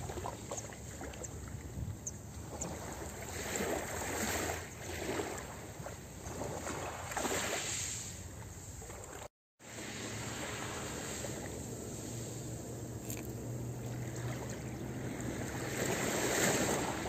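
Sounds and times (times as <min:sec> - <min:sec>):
waves washing over pebbles: 0:09.6 - 0:17.0.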